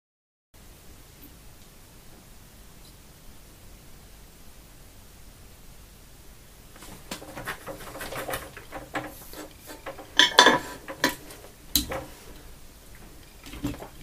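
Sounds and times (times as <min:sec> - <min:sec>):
soldering iron clattering in stand: 0:06.8 - 0:12.4.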